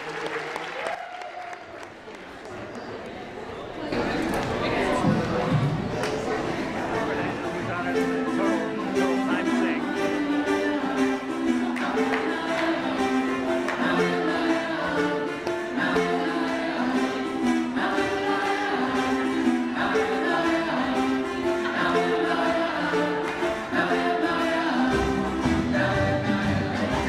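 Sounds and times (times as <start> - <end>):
marimba ensemble playing: 7.0 - 27.0.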